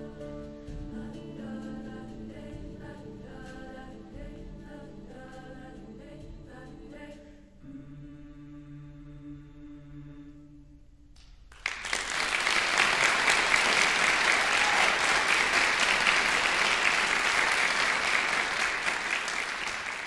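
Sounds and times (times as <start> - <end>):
choir holding a chord: 0.0 - 10.7
audience applause: 11.6 - 20.0.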